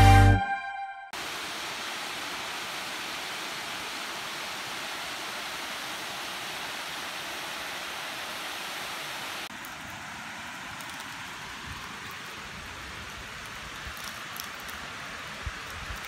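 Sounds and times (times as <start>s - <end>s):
background music: 0.0s - 1.1s
steady outdoor hiss: 1.2s - 16.0s.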